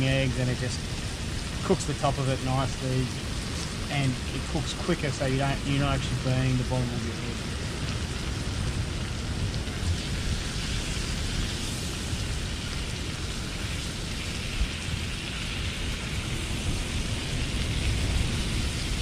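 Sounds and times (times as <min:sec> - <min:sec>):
bacon sizzling in a pan: 0:07.4 - 0:19.0.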